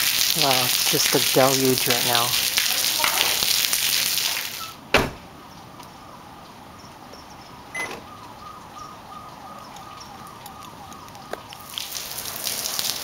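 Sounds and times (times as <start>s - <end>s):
heavy rain: 0.0s - 4.9s, 9.5s - 13.0s.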